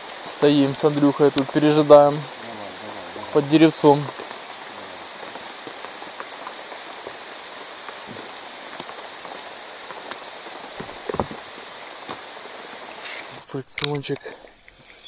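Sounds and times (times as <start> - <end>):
steady rain falling: 0.0 - 15.0
drops ticking: 0.6 - 12.2
soft knocks: 10.8 - 11.4.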